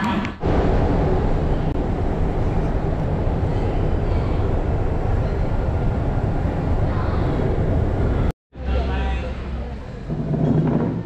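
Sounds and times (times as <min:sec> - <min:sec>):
moving vehicle rumbling: 0:00.0 - 0:08.3.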